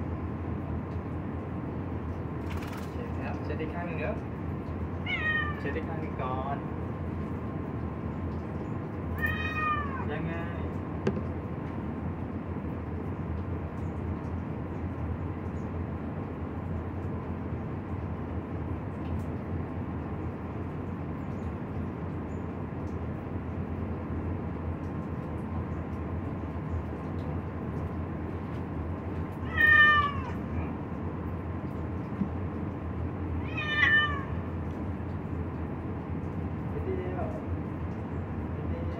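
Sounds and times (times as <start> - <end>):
cat meowing: 5.0 - 5.8, 9.1 - 10.2, 29.4 - 30.8, 33.4 - 34.5.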